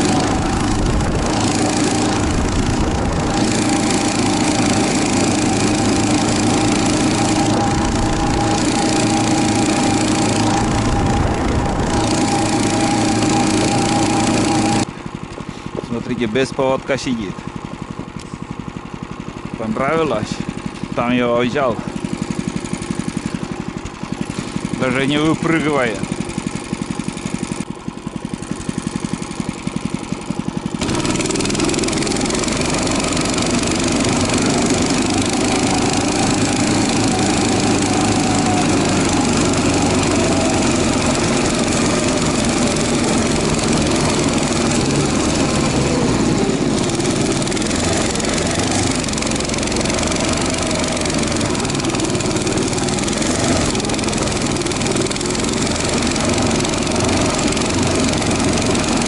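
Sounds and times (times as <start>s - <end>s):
snow tug engine running: 0.0s - 59.0s.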